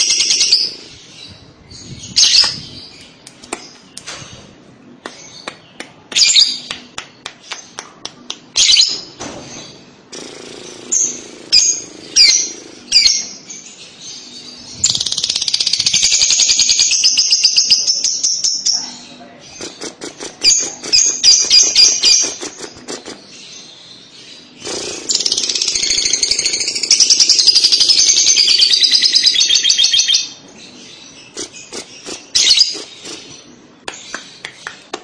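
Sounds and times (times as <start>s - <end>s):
bird chirping: 8.6s - 34.9s.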